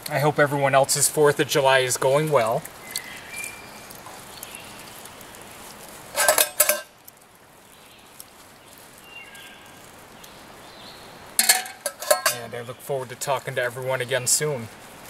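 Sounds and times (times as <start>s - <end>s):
washing up handling sounds: 2.0s - 7.0s, 11.4s - 12.5s
metal pots and cups clinking: 6.2s - 6.9s, 11.4s - 12.5s.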